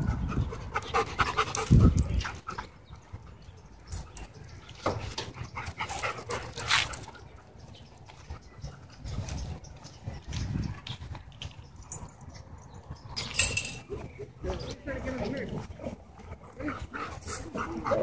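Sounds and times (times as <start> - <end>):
dogs panting: 0.0 - 13.2, 13.8 - 18.0
scuffs and rustles of movement: 1.6 - 12.5.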